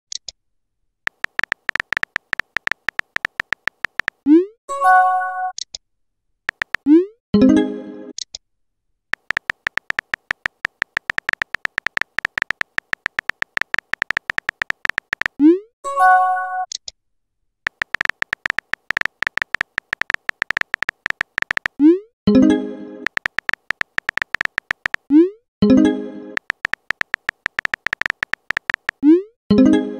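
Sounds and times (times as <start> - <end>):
phone keyboard typing clicks: 1.1 - 4.2, 6.5 - 6.9, 9.2 - 15.4, 17.7 - 21.8, 23.0 - 25.1, 26.4 - 29.1.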